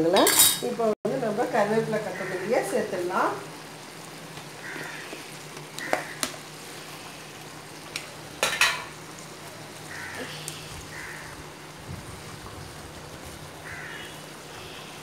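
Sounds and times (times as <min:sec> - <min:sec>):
thick stew bubbling: 0:01.2 - 0:15.0.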